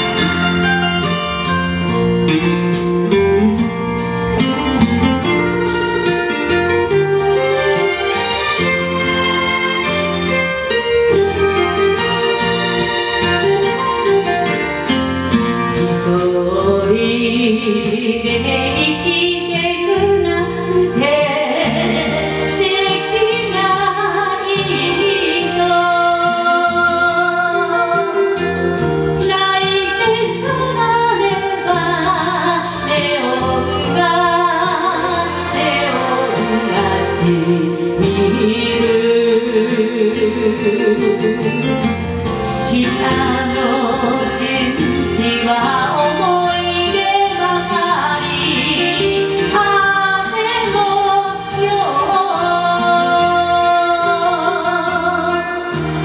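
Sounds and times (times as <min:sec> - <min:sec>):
woman singing with vibrato: 0:00.0 - 0:02.4, 0:15.4 - 0:56.0
karaoke backing track: 0:00.0 - 0:56.0.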